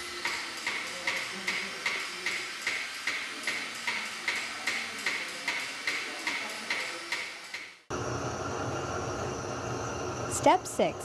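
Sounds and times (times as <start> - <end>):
steady hum: 7.9 - 11.0.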